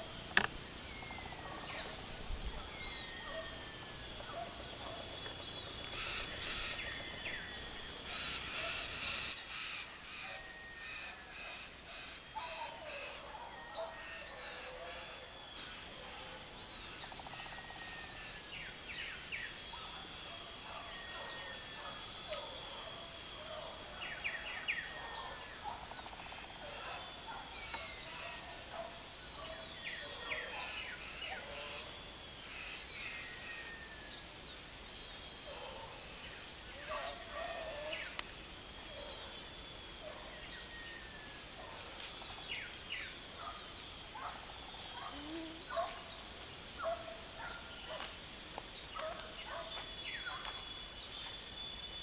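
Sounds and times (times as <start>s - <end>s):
birds chirping: 0.0s - 10.5s
high-pitched insect buzz: 44.2s - 46.6s.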